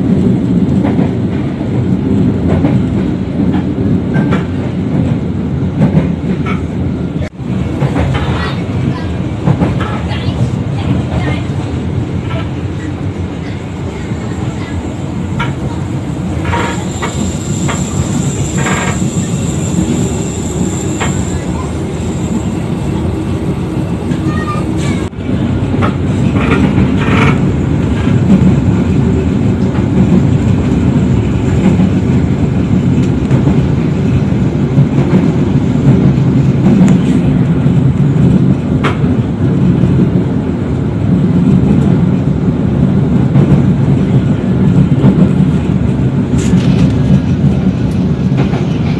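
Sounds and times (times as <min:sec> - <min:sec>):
train coach rumble: 0:00.0 - 0:48.9
train wheels clacking: 0:15.3 - 0:25.1, 0:25.7 - 0:37.4.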